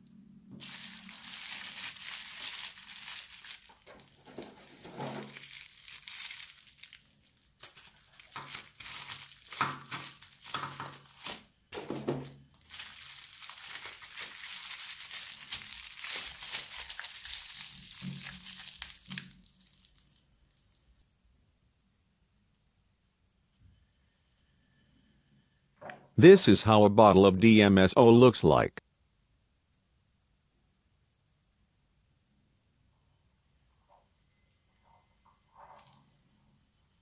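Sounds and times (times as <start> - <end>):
bubble wrap crinkling: 0.6 - 21.0.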